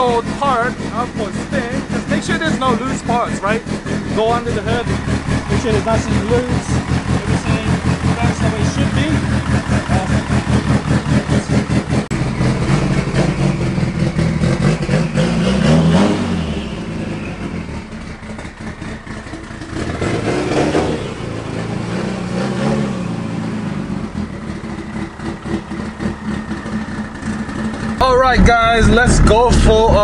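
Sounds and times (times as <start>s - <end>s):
car engine revving: 0.0s - 30.0s.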